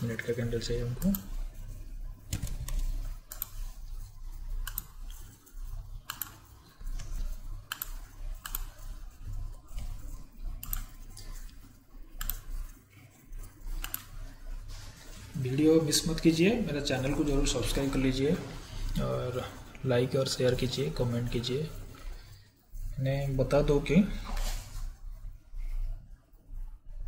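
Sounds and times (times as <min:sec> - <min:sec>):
faint low hum: 0:00.0 - 0:27.0
mouse and keyboard clicks: 0:02.3 - 0:03.8, 0:04.6 - 0:05.4, 0:06.0 - 0:08.9, 0:09.7 - 0:12.7, 0:13.7 - 0:14.2.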